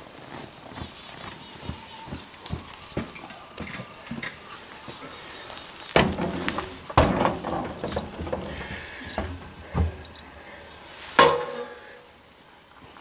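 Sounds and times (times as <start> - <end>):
knocks and clatter: 6.0 - 10.1
rattling: 6.0 - 10.2.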